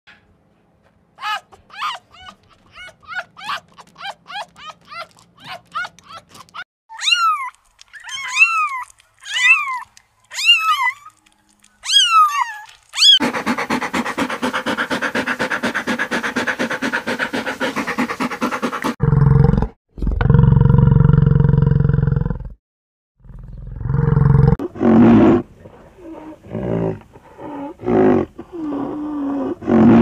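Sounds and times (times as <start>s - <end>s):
dog panting: 13.2s - 19.0s.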